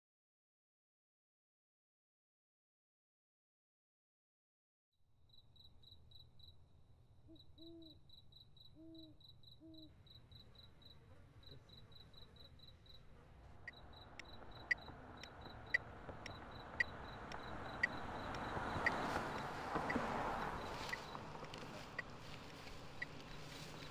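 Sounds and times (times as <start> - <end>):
crickets chirping: 5.3 - 6.7, 7.3 - 13.1, 13.7 - 23.9
owl hooting: 7.3 - 8.0, 8.8 - 9.9
sharp clicks: 16.2 - 20.0.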